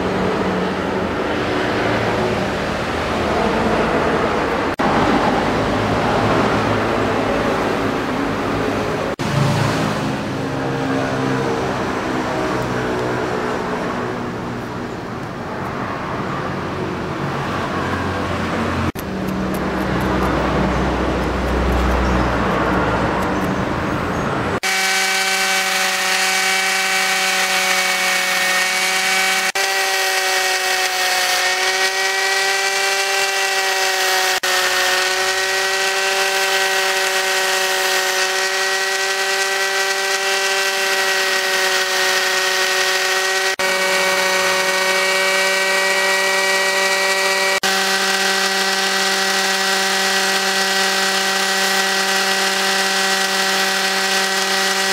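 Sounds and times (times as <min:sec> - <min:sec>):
angle grinder whining: 0:00.0 - 0:54.9
sanding against a disc: 0:24.6 - 0:54.9.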